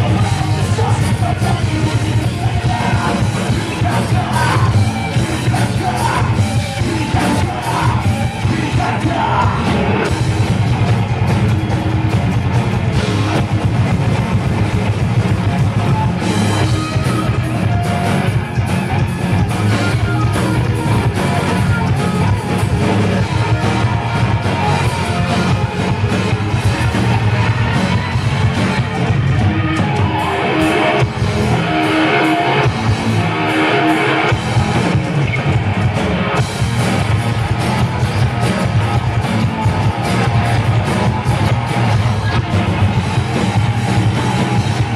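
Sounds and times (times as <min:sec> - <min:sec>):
shouted vocals: 0:00.0 - 0:10.1, 0:15.8 - 0:34.2
thrash metal band playing: 0:00.0 - 0:44.9.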